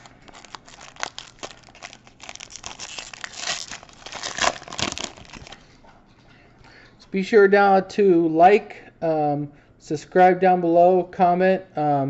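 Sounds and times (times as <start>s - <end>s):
plastic wrapper tearing and crinkling: 0.0s - 5.6s.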